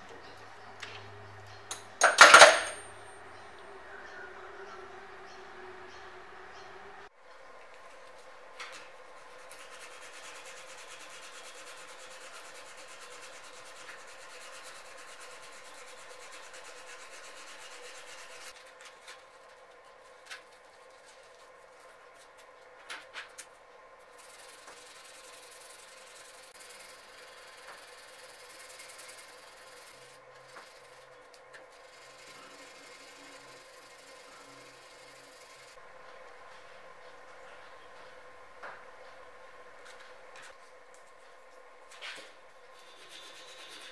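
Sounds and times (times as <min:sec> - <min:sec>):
hand-sanding metal: 0:08.8 - 0:18.6, 0:24.1 - 0:31.1, 0:31.7 - 0:35.8, 0:42.7 - 0:43.9.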